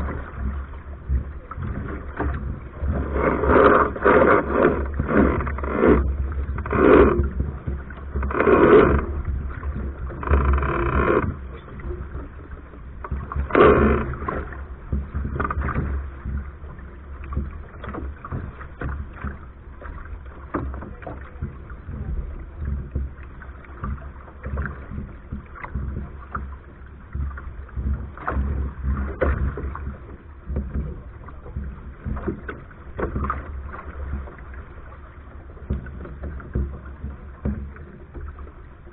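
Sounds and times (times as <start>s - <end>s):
water splashing along a hull: 0.0s - 38.9s.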